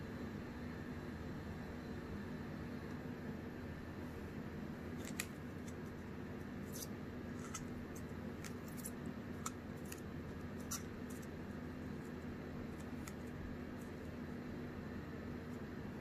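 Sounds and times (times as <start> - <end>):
low background hum: 0.0 - 16.0
paper clicks and crinkles: 4.9 - 14.2.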